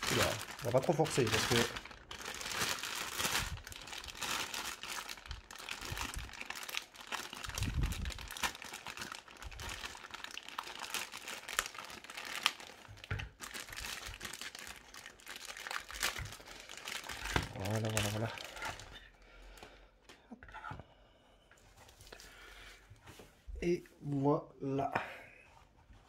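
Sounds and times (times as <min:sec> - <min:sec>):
plastic bag crinkling: 0:00.0 - 0:19.1.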